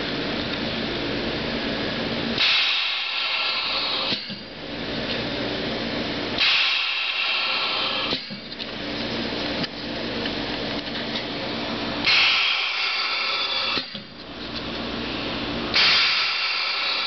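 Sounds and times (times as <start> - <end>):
steady machine hum: 0.0 - 17.0
ultrasonic welder screech: 12.1 - 14.0, 15.8 - 17.0.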